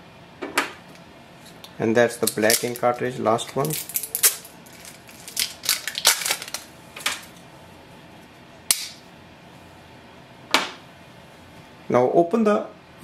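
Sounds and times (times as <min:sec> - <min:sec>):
plastic packaging crackling: 0:02.2 - 0:07.4
cap snapping off: 0:08.7 - 0:09.0.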